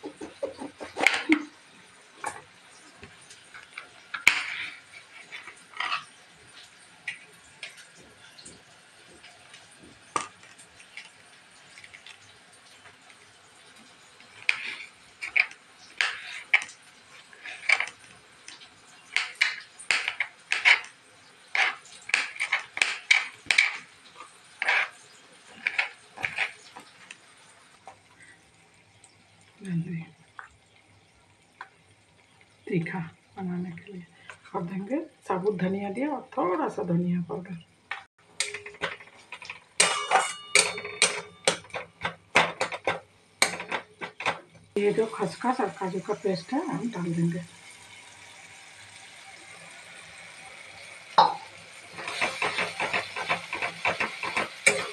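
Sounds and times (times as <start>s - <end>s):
spatula scraping metal pan: 0.0s - 1.5s, 3.6s - 6.2s, 14.3s - 18.1s, 19.1s - 20.9s, 21.5s - 26.9s, 38.4s - 41.8s, 51.9s - 54.9s.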